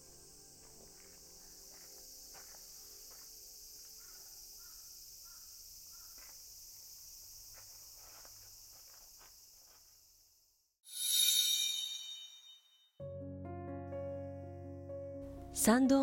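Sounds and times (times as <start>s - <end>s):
insects droning: 0.0s - 12.3s.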